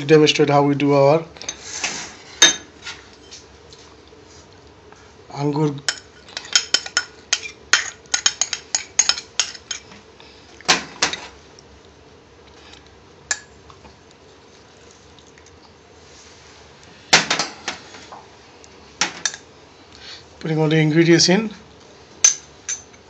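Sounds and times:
bowls and utensils clinking: 0:05.9 - 0:10.0, 0:22.2 - 0:23.0.

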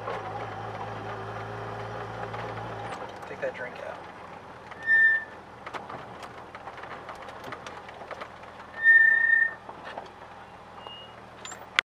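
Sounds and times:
car engine idling: 0:00.0 - 0:11.8
high-pitched whistle-like tones: 0:04.8 - 0:05.3, 0:08.8 - 0:09.6.

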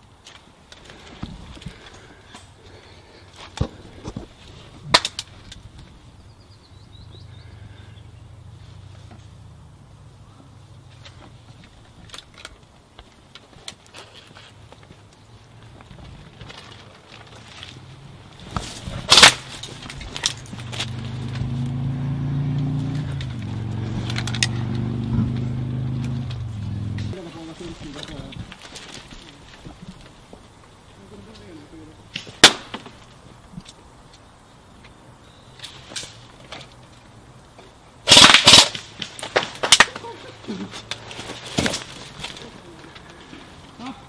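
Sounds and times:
vehicle engine running: 0:19.8 - 0:27.2
airsoft rifle burst: 0:38.1 - 0:40.1.

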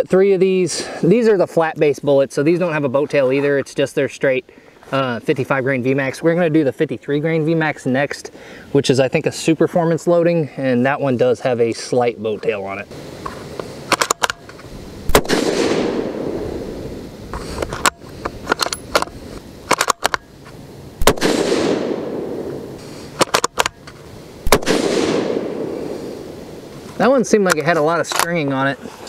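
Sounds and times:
rifle shots with rolling echo: 0:15.1 - 0:16.6, 0:21.0 - 0:23.5, 0:24.4 - 0:26.3
rifle bolt clicking: 0:19.7 - 0:20.2, 0:23.2 - 0:24.6.

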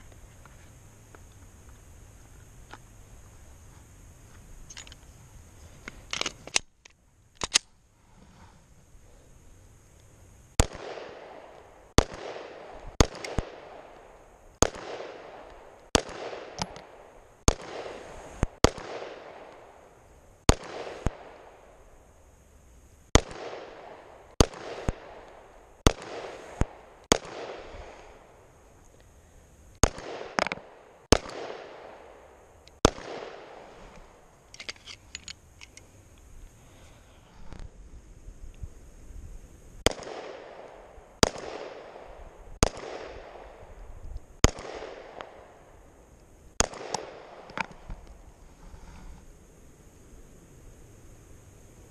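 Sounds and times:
pistol shots with echo: 0:10.6 - 0:18.0, 0:18.6 - 0:19.8, 0:20.5 - 0:21.5, 0:23.2 - 0:27.7, 0:29.8 - 0:32.2, 0:32.8 - 0:33.6, 0:39.8 - 0:43.7, 0:44.4 - 0:45.6, 0:46.6 - 0:47.6.

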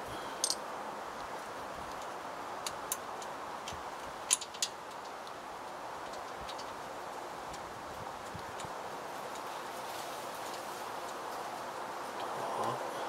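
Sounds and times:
steady low hiss: 0:00.0 - 0:13.0
clicks and taps of parts handled: 0:01.9 - 0:06.8.

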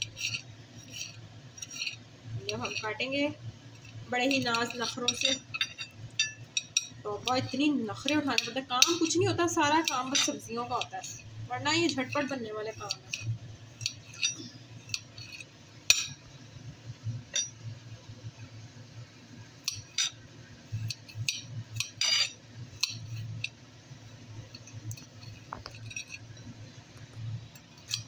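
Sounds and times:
knife clicking on a plate: 0:08.1 - 0:09.2, 0:12.8 - 0:16.2, 0:19.6 - 0:20.2, 0:20.8 - 0:23.6.

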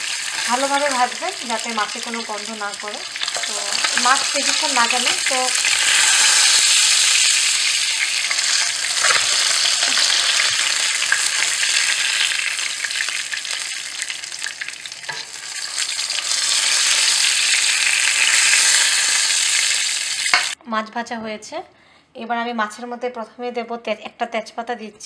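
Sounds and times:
oil sizzling in a frying pan: 0:00.0 - 0:20.6
spatula tapping and scraping: 0:08.2 - 0:11.7, 0:15.1 - 0:15.4.

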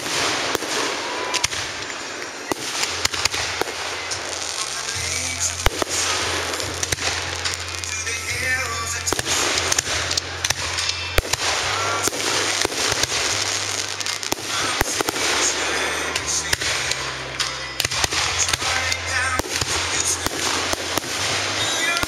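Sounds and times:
continuous noisy wash: 0:00.0 - 0:22.0
fireworks bangs: 0:00.0 - 0:22.0.

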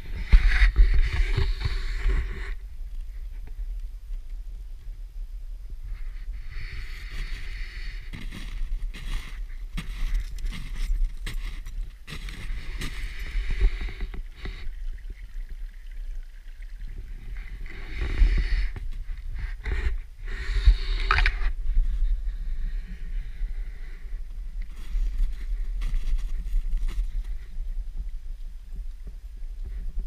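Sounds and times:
low rumble: 0:00.0 - 0:30.0
footsteps crunching through snow: 0:08.1 - 0:14.0, 0:24.7 - 0:27.3.

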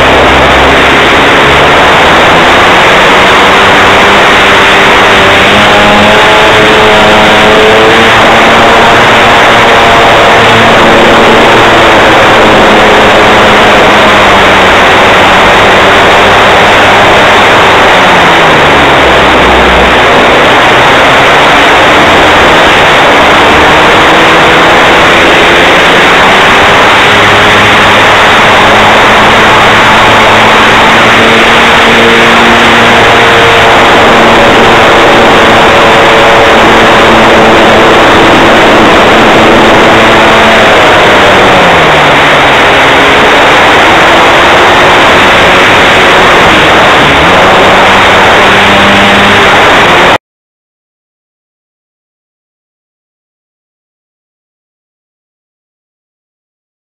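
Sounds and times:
model plane engine: 0:00.0 - 0:50.2
wind rush: 0:00.0 - 0:50.2.

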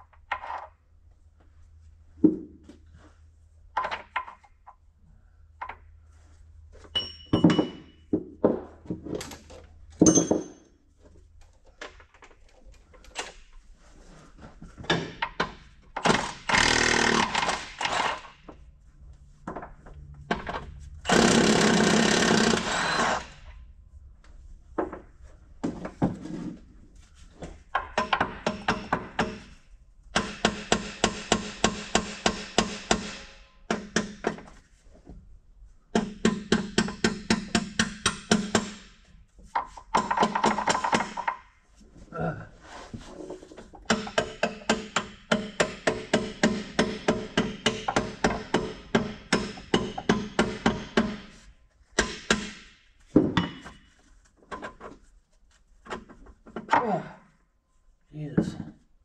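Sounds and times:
hand tools clanking on metal: 0:06.9 - 0:08.0
power tool running: 0:16.2 - 0:18.2.

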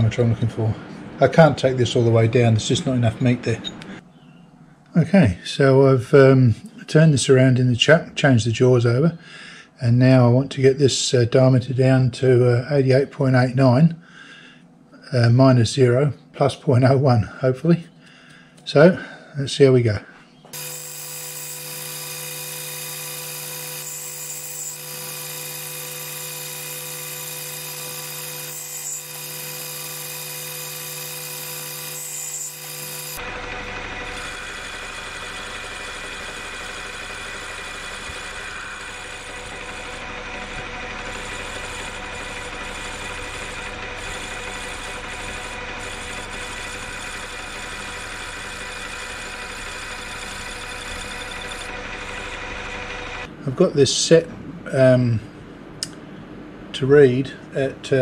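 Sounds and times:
metal lathe running: 0:20.6 - 0:53.3.

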